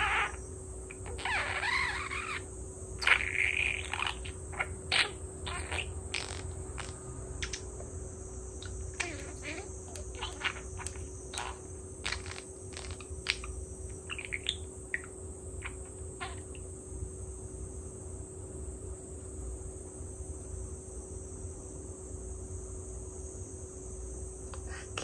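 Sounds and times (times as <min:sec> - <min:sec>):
budgerigar warble: 0:00.0 - 0:07.6, 0:08.6 - 0:16.6
budgerigar chirps and clicks: 0:08.6 - 0:16.6.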